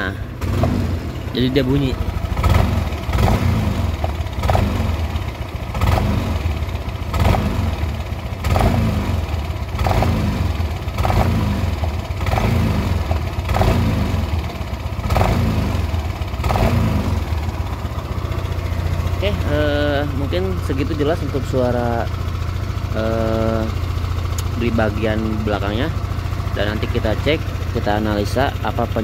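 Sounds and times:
scooter engine revving: 0.0 - 29.0.

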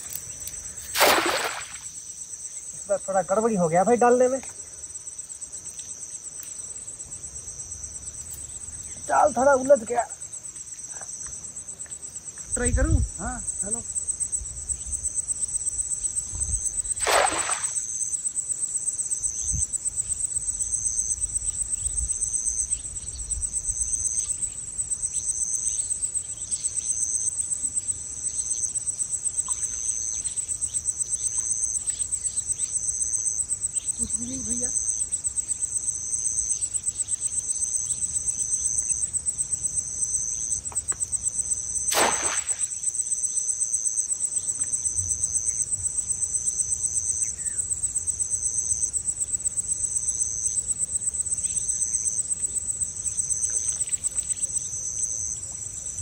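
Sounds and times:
crickets chirring: 0.0 - 56.0
short splash-like rush of noise: 0.9 - 1.8, 17.0 - 17.8, 41.9 - 42.7.

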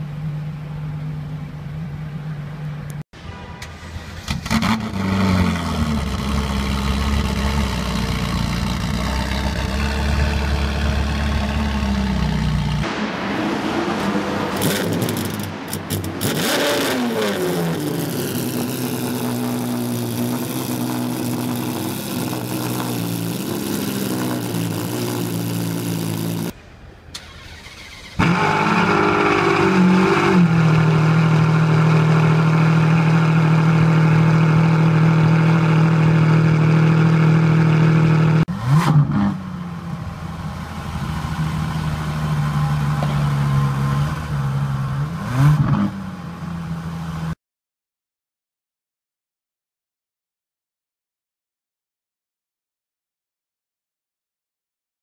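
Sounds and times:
sports car engine idling: 0.0 - 3.0, 5.9 - 12.9
sports car engine revving: 4.1 - 26.5, 28.1 - 40.4.

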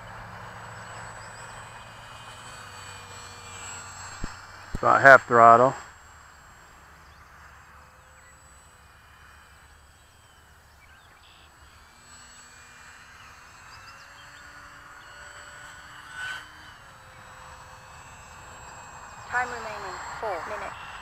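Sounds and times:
distant electric motor whine: 0.0 - 21.0
faint bird chirps: 7.0 - 8.8, 9.8 - 11.9.

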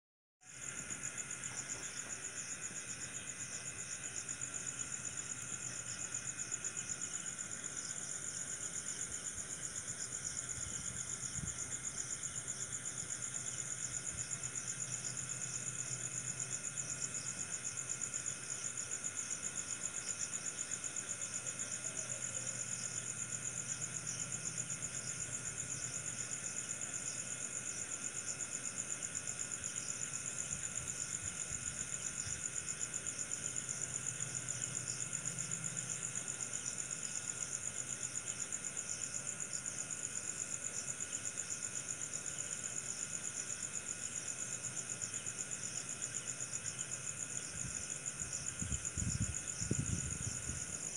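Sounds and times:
crickets chirping: 0.4 - 50.9
low-pitched insect trilling: 0.4 - 50.9.

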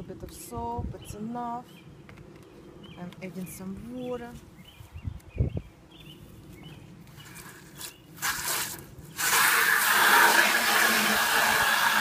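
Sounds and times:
hose water filling bucket: 8.2 - 12.0.

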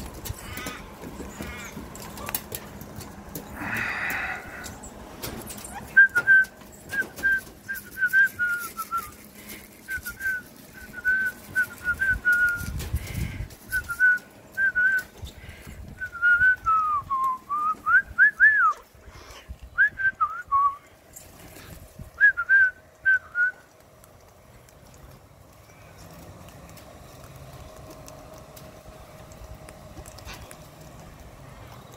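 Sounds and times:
person whistling: 9.9 - 12.7, 16.0 - 18.8, 19.8 - 20.8.

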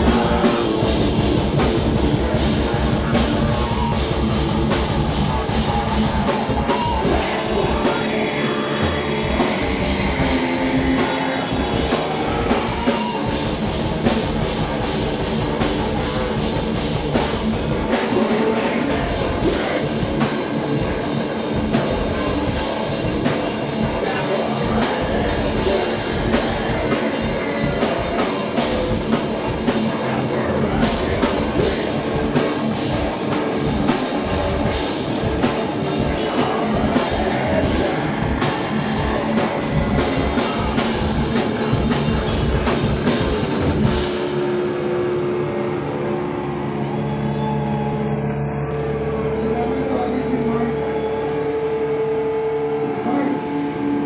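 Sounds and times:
distorted electric guitar: 0.0 - 54.0
drum kit: 0.0 - 54.0.

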